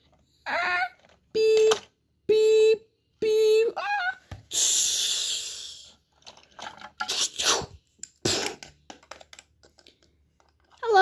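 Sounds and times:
plastic toys scraping and rubbing: 5.9s - 10.9s.

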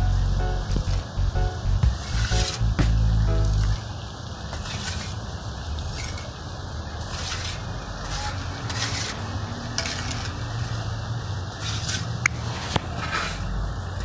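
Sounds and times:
steady low rumble: 0.0s - 3.9s
trowel scraping cement on wall: 4.6s - 5.2s, 7.0s - 10.3s, 11.6s - 13.5s.

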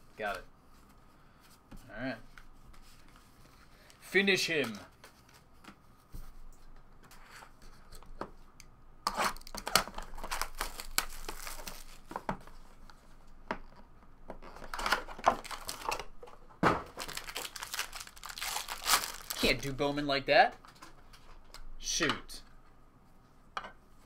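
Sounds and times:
wrapper crinkling: 9.4s - 12.1s, 14.7s - 16.1s, 16.9s - 19.7s
cardboard tearing: 17.0s - 19.4s.

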